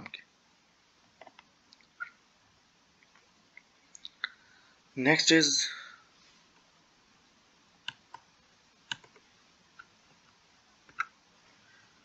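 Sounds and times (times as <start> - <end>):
faint hiss: 0.0 - 12.0
computer mouse clicks: 1.2 - 2.2, 7.8 - 8.3, 8.9 - 9.9, 10.9 - 11.2.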